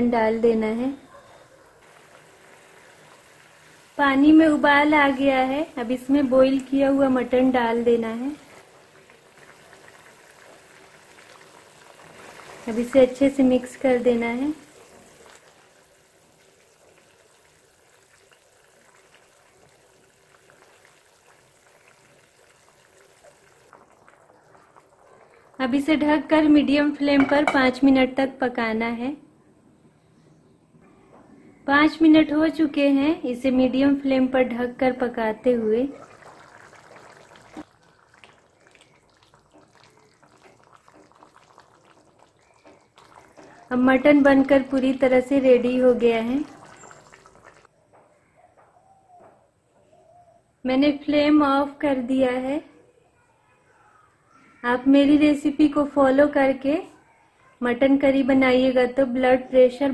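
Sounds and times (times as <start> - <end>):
curry bubbling: 0.0 - 27.9, 33.8 - 47.7
wooden spatula stirring: 38.6 - 43.8.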